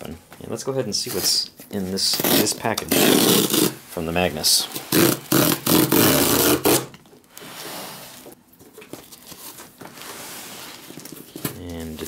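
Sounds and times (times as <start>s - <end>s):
cardboard tearing: 2.1s - 3.8s, 4.8s - 6.9s
cardboard scraping and rustling: 7.4s - 12.0s.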